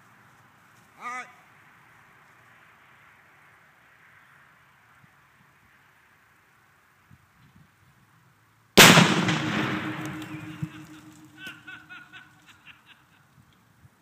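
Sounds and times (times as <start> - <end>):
explosion blast with echo: 8.8 - 11.4.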